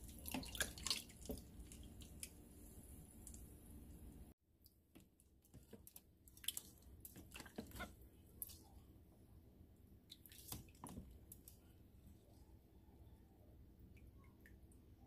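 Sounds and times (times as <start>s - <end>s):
wet squelches and small splashes: 0.0s - 3.4s, 4.6s - 9.0s, 10.0s - 11.6s.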